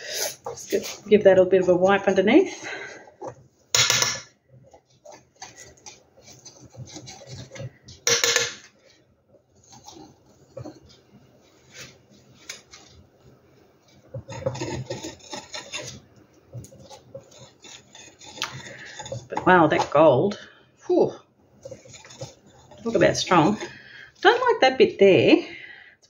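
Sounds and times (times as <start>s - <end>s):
palette knife scraping canvas: 14.2s - 16.0s, 16.7s - 19.3s.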